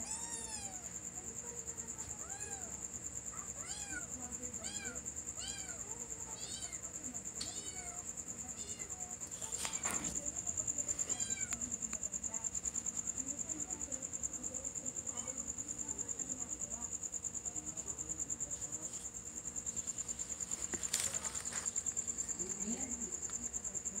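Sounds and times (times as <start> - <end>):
cricket chirping: 0.0 - 24.0.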